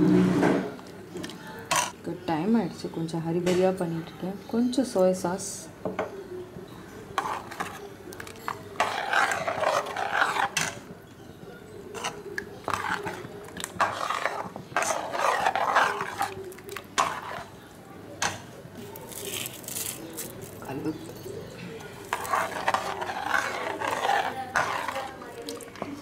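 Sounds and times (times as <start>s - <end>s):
ladle stirring and scraping a pan: 1.3s - 2.0s, 7.1s - 26.0s.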